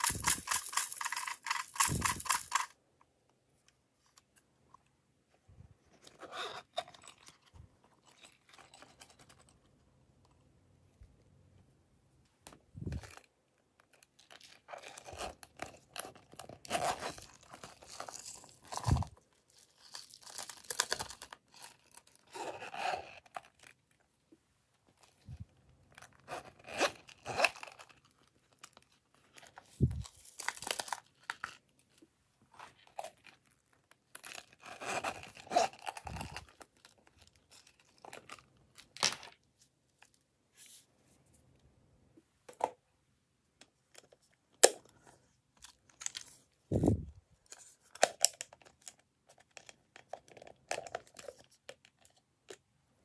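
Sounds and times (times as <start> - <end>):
glitter rattling and crinkling: 0.0 - 2.8.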